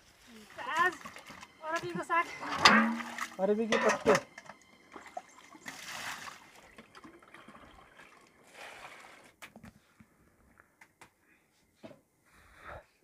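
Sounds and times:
water trickling: 0.3s - 9.3s.

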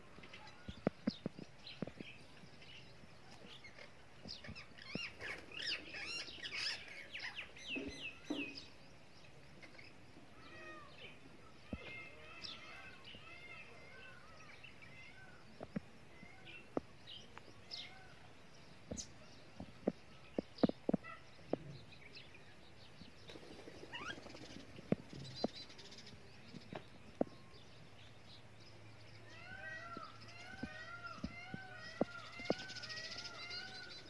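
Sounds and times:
parakeets chirping: 3.5s - 8.3s, 23.4s - 26.8s, 29.4s - 34.0s.

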